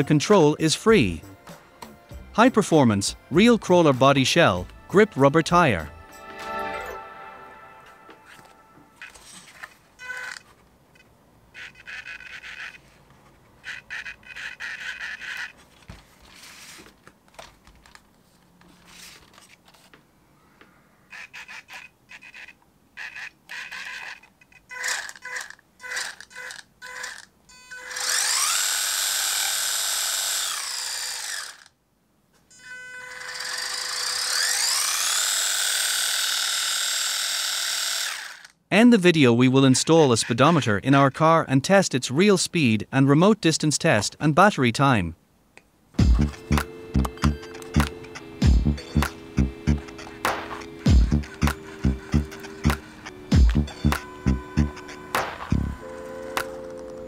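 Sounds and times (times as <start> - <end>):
electric motor and gears whining: 9.0 - 10.4, 11.6 - 12.8, 13.6 - 15.6, 21.1 - 31.7, 32.5 - 38.6, 46.0 - 57.0.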